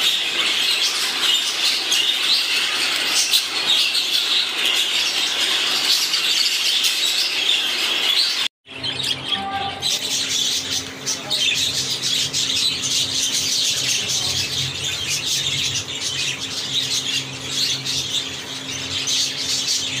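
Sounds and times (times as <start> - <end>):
budgerigars chattering: 0.0 - 20.0
steady low hum: 8.7 - 20.0.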